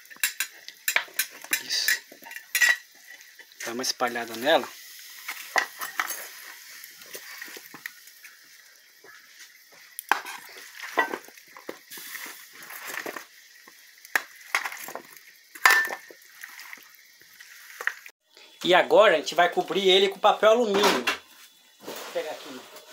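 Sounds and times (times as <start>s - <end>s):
metal spoon scraping a pan: 0.0s - 3.6s, 5.0s - 7.7s, 10.1s - 11.3s.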